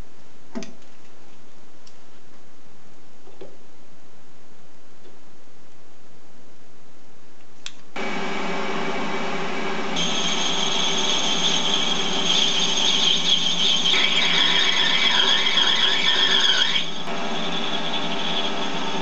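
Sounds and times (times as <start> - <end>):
click: 7.4 - 7.9
lathe motor whine: 8.0 - 19.0.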